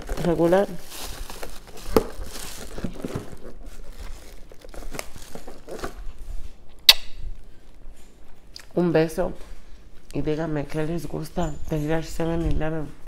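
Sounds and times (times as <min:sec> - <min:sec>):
packaging crinkling and rustling: 0:00.0 - 0:06.6.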